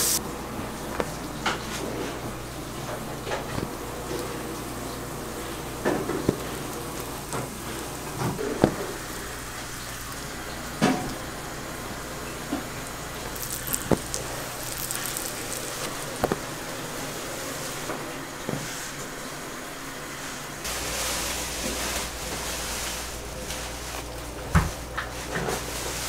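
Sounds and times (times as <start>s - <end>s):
buns sizzling on griddle: 1.7s - 17.9s.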